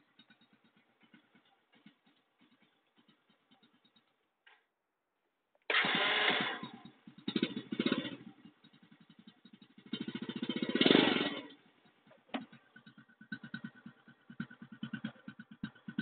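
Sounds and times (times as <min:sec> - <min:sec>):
motorcycle engine revving: 0:00.0 - 0:04.2, 0:05.7 - 0:16.0.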